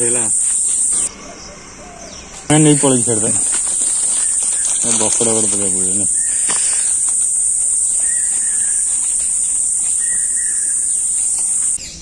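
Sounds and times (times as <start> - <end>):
insects droning: 0.0 - 12.0
faint short calls: 2.2 - 11.8.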